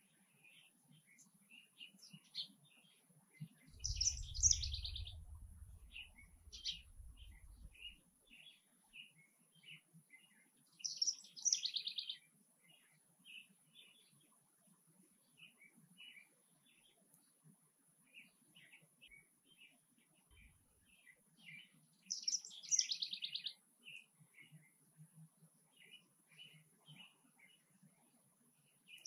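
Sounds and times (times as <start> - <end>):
songbirds chirping: 0.0 - 29.0
low rumble: 3.8 - 7.8.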